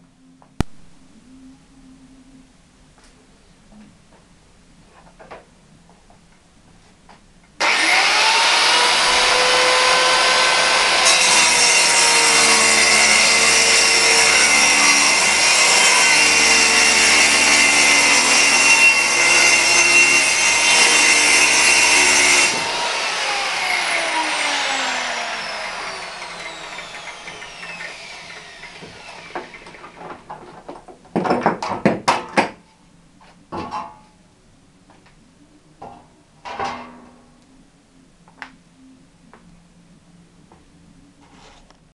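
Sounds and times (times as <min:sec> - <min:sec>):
circular saw cutting: 0:07.6 - 0:30.0.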